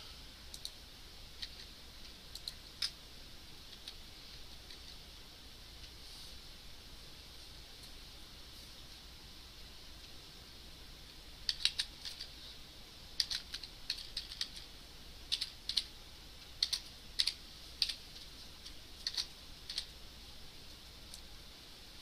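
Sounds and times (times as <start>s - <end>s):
typing on a computer keyboard: 2.3s - 3.0s, 11.4s - 12.3s, 13.2s - 14.7s, 15.3s - 15.9s, 16.6s - 18.0s, 18.6s - 19.9s.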